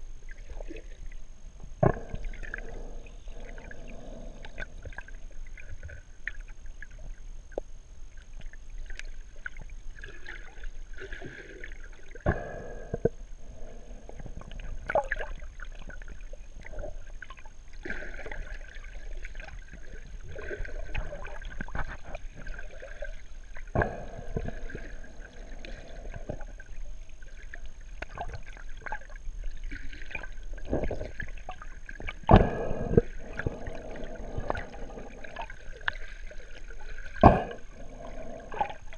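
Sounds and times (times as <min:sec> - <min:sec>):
bubbling exhalations: 0:01.8 - 0:05.2, 0:11.1 - 0:17.0, 0:23.7 - 0:26.7, 0:30.1 - 0:38.9
diver breathing through regulator: 0:01.8 - 0:05.2, 0:12.3 - 0:14.8, 0:23.8 - 0:26.6, 0:32.3 - 0:38.9.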